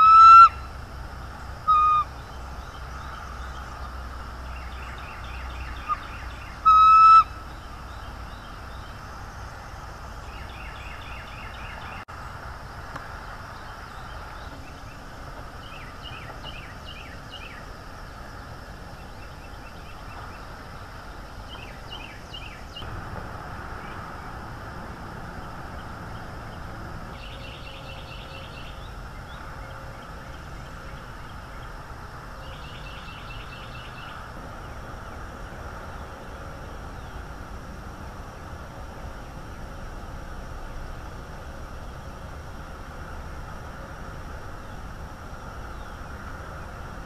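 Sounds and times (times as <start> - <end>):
bird trills: 0.0 - 0.7, 1.6 - 3.6, 4.6 - 8.9
steady low rumble: 0.0 - 47.0.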